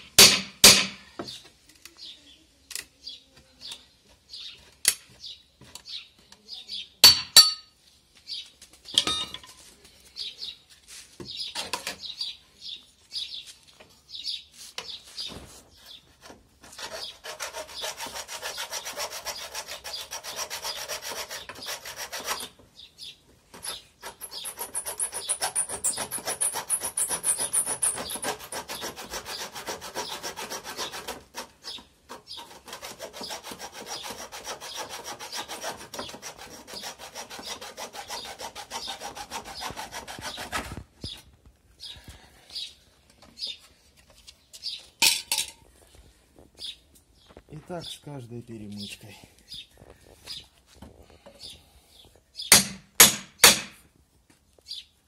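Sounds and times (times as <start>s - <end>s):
hacksaw rasping through nails: 0.1s - 1.0s, 16.6s - 22.6s, 23.6s - 40.7s, 52.5s - 53.8s
metal clinks and scrapes: 9.0s - 9.7s, 44.6s - 45.7s.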